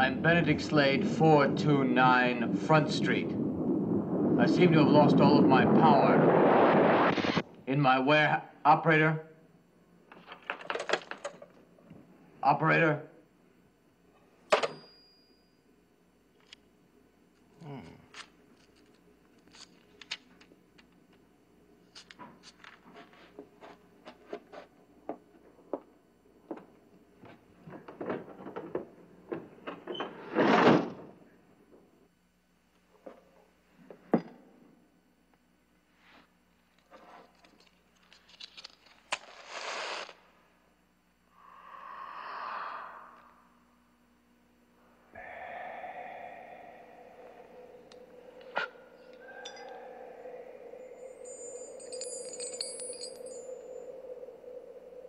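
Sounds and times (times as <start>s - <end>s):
whoosh: 2.4s - 7.4s
match struck and flaring: 39.1s - 40.3s
steady droning tone: 41.2s - 55.0s.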